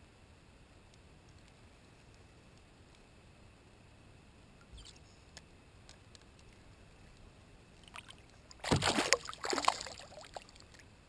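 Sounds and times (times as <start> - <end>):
fish thrashing and splashing water: 7.8 - 10.8.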